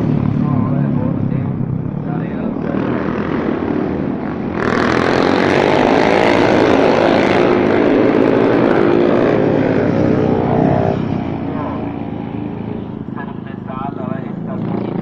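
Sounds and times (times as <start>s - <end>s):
racing motorcycle engine revving: 0.0s - 15.0s.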